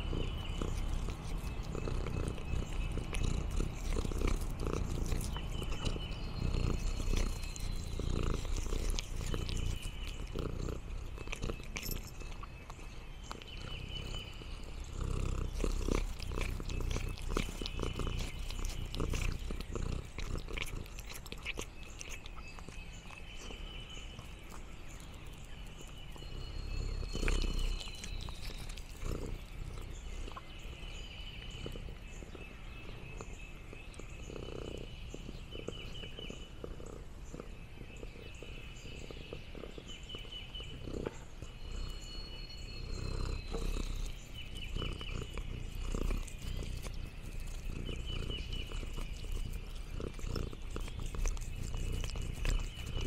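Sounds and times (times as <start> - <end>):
cat purring: 0.0 - 53.0
crackling rustles and clicks: 0.6 - 13.6, 15.5 - 22.8, 27.0 - 30.4, 44.9 - 53.0.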